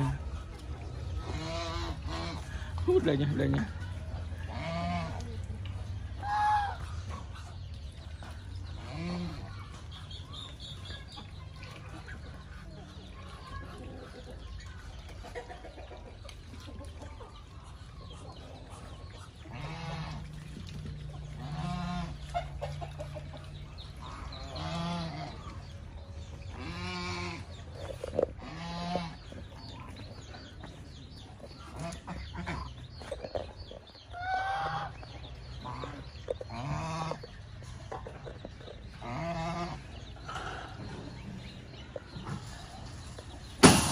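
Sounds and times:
poultry calling: 0:00.0 - 0:03.7, 0:06.2 - 0:07.7, 0:21.3 - 0:43.9.

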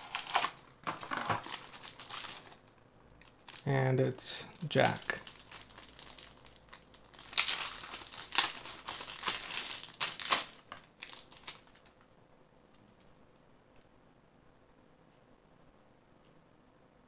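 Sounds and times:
plastic wrapping crinkling: 0:00.0 - 0:03.7, 0:04.4 - 0:12.0.

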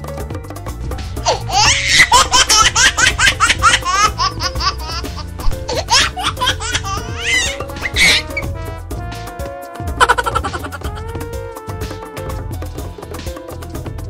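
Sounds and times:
background music with bass: 0:00.0 - 0:14.0
high-pitched laughter: 0:01.2 - 0:08.5, 0:10.0 - 0:11.0.

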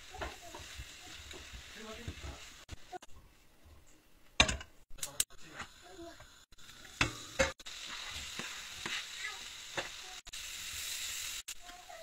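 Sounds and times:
onions sizzling in a frying pan: 0:00.0 - 0:03.2, 0:05.3 - 0:12.0.

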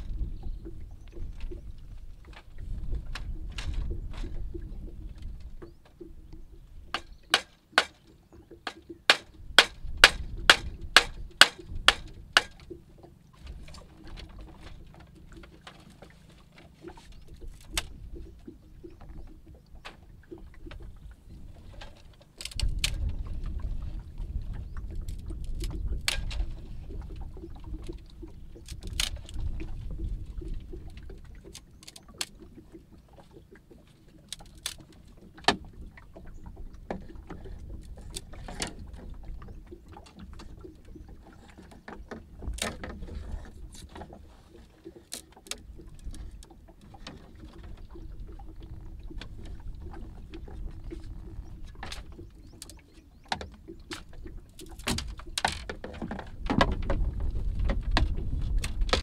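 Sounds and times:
blade chopping bamboo: 0:07.3 - 0:08.0, 0:09.1 - 0:12.5
bamboo strips cracking: 0:34.3 - 0:34.9.

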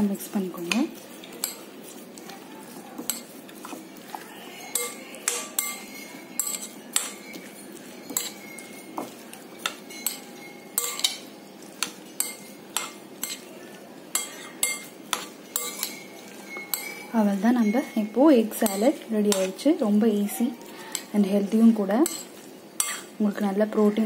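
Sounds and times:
metal spoon clinking glass bowl: 0:00.6 - 0:02.0, 0:04.5 - 0:13.5, 0:14.1 - 0:23.1.

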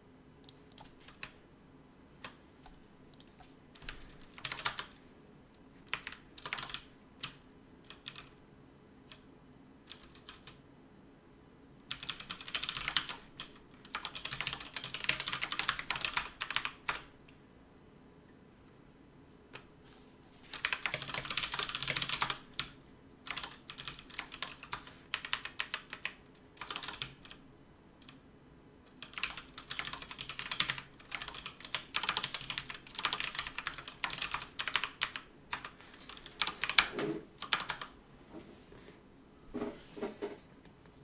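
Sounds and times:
fast typing on keyboard: 0:00.7 - 0:01.4, 0:03.2 - 0:05.0, 0:05.9 - 0:08.4, 0:09.9 - 0:10.6, 0:11.9 - 0:17.2, 0:20.5 - 0:27.4, 0:28.9 - 0:38.0.

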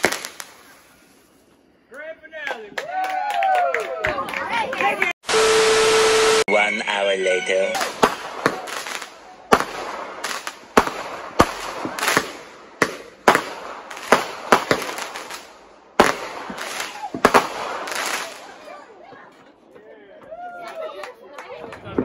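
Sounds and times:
firework bangs: 0:00.0 - 0:01.4, 0:07.8 - 0:18.7
firework hissing: 0:00.0 - 0:01.6.

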